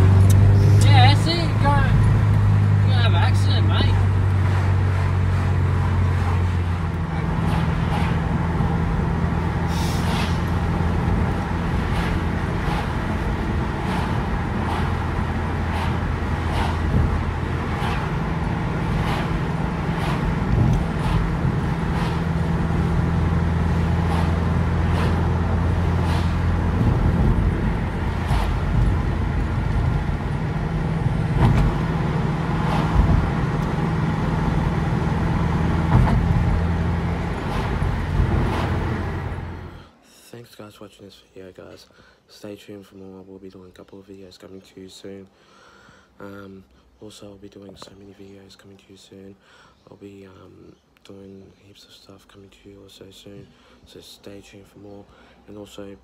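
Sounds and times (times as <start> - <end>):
light road bumps: 0.0 - 39.8
car engine drone: 0.0 - 40.0
tyre noise: 4.4 - 39.8.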